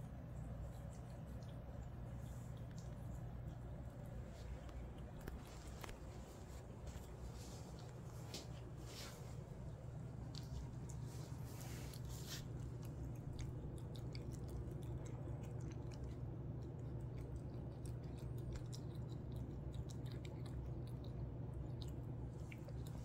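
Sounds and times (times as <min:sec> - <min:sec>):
steady low hum: 0:00.0 - 0:23.0
cat chewing clicks: 0:12.5 - 0:23.0.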